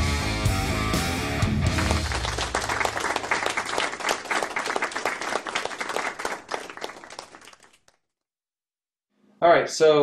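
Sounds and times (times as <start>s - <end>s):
applause: 1.6s - 8.0s.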